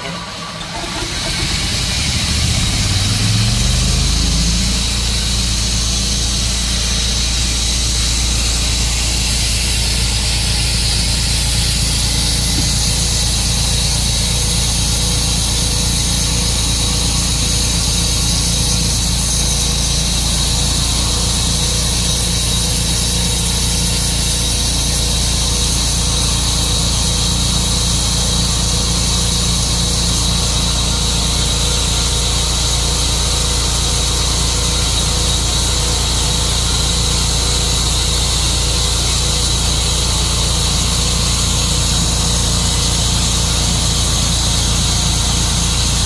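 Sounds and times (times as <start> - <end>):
sawmill engine running: 0.0 - 46.0.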